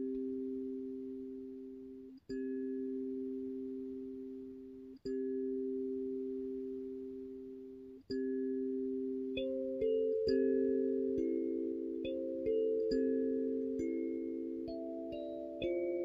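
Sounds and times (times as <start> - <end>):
kalimba notes ringing: 5.1 - 16.0.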